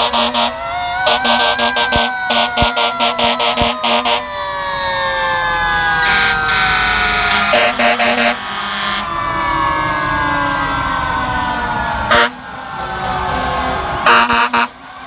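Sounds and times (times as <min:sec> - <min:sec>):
pulsed warning horn blasts: 0:00.0 - 0:04.3, 0:06.0 - 0:09.4, 0:12.1 - 0:14.8
fire truck sirens wailing: 0:00.0 - 0:15.0.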